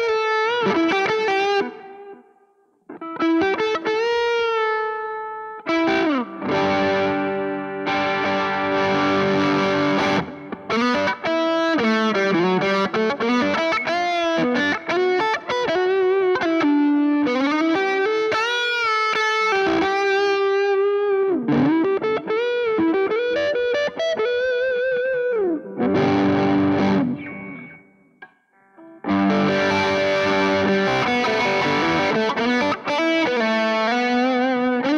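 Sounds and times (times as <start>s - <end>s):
distorted electric guitar: 0.0s - 34.9s.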